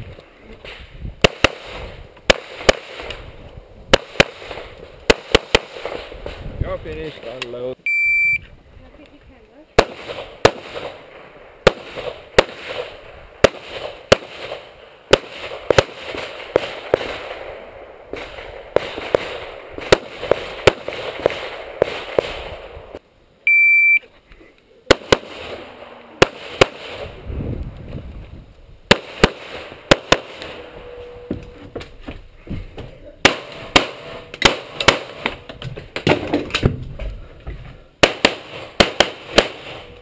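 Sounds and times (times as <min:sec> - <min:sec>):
pistol shots: 0:01.2 - 0:03.2, 0:03.9 - 0:06.1, 0:09.8 - 0:22.7, 0:24.9 - 0:27.2, 0:28.9 - 0:30.6, 0:33.2 - 0:35.4, 0:38.0 - 0:39.9
shot timer beep: 0:07.8 - 0:08.4, 0:23.5 - 0:24.0.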